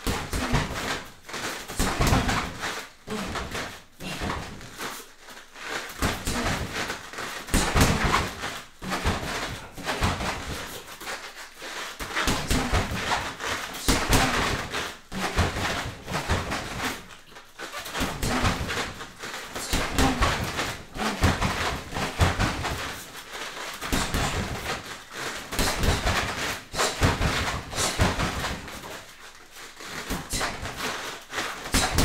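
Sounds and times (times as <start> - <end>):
bare feet shuffling on mats: 0.0 - 32.0
person exhaling and grunting: 3.0 - 4.5.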